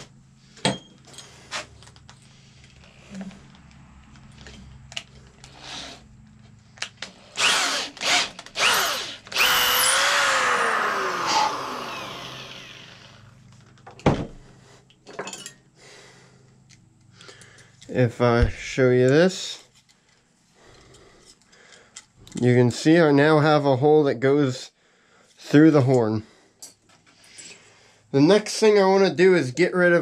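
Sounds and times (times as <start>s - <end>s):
electric drill running: 7.3s - 13.4s.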